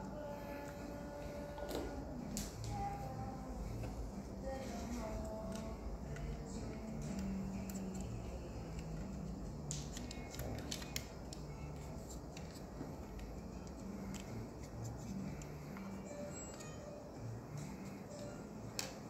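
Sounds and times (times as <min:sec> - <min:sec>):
plastic parts clicking and tapping: 0:07.0 - 0:16.7.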